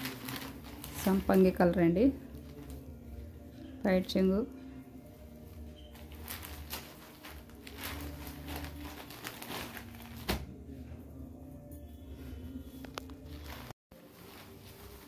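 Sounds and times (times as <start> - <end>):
cloth rustling: 0.0 - 1.6, 5.0 - 10.6, 12.8 - 15.0.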